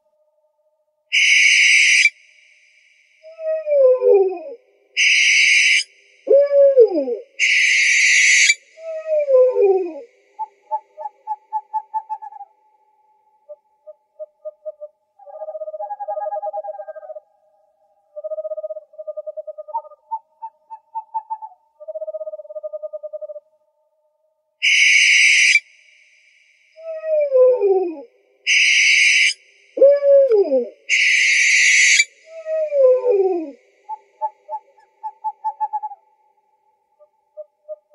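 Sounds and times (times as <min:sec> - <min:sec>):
owl hissing screech: 0:01.1 - 0:02.1, 0:05.0 - 0:05.9, 0:07.4 - 0:08.6, 0:24.6 - 0:25.6, 0:28.5 - 0:29.4, 0:30.9 - 0:32.4
owl quivering trills: 0:01.1 - 0:02.2, 0:03.2 - 0:12.6, 0:24.6 - 0:25.6, 0:26.8 - 0:36.0
owl wavering wail: 0:01.1 - 0:02.2, 0:03.2 - 0:12.8, 0:24.6 - 0:25.6, 0:26.8 - 0:36.0.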